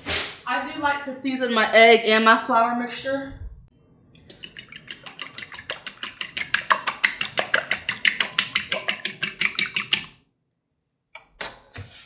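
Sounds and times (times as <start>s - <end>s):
fork clinking against glass bowl: 4.3s - 10.1s.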